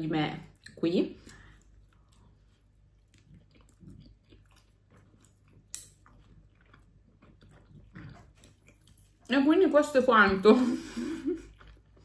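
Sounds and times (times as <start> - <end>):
close-up chewing: 0.5 - 9.3, 11.4 - 12.0.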